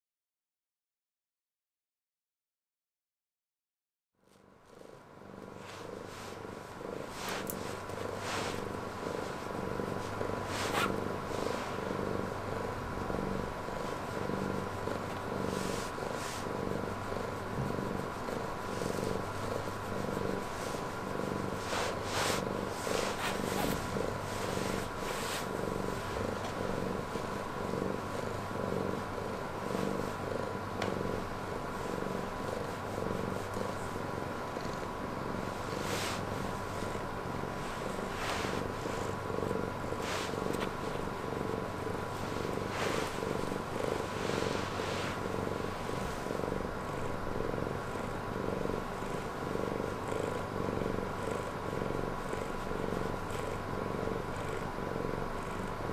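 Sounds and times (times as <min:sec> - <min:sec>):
cat purring: 0:04.3 - 0:55.9
hand rustling over fur: 0:05.4 - 0:28.6, 0:35.4 - 0:47.4.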